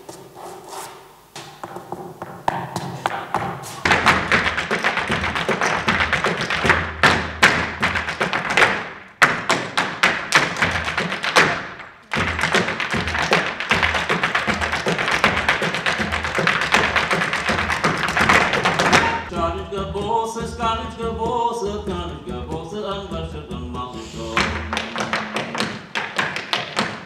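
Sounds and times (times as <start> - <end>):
hard-shoe step dancing taps: 1.4 - 27.0
live music: 12.0 - 26.0.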